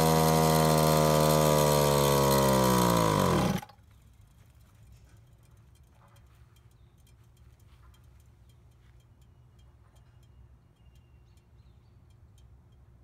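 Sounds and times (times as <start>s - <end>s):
faint ticks: 3.7s - 12.9s
faint bird chirp: 3.8s - 13.0s.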